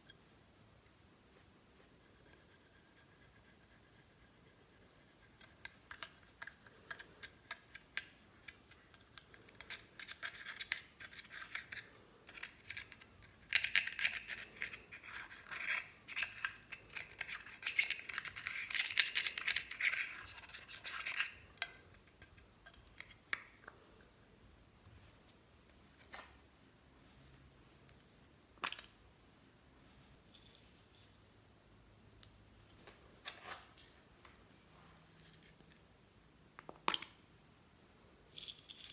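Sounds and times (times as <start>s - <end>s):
tool scraping powder: 9.5s - 21.5s.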